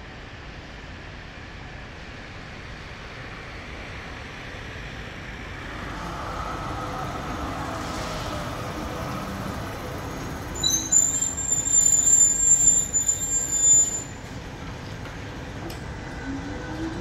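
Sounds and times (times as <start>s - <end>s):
tram rumbling past: 1.4s - 17.0s
high-pitched metal squeal: 10.5s - 14.2s.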